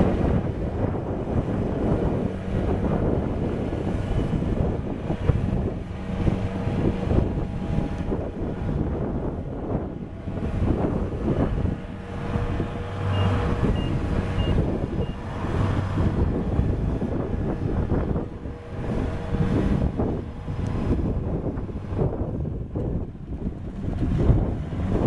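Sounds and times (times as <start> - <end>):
combine harvester running: 0.0 - 25.0
short high warning beeps: 13.1 - 15.2.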